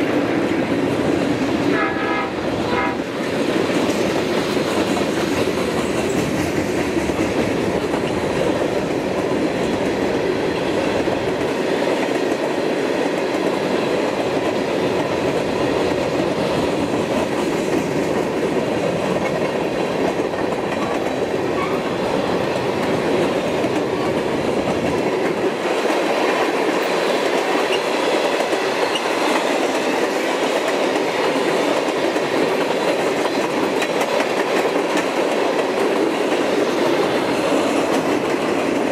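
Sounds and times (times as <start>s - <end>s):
train wheels rumbling on rails: 0.0s - 38.9s.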